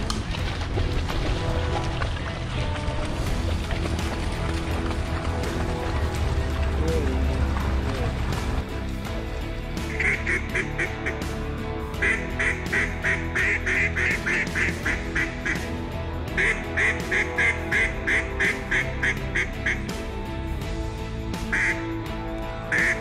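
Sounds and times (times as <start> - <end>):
background music: 0.0 - 23.0
duck quacking: 9.9 - 11.2, 12.0 - 15.7, 16.4 - 19.8, 21.5 - 21.8, 22.7 - 23.0.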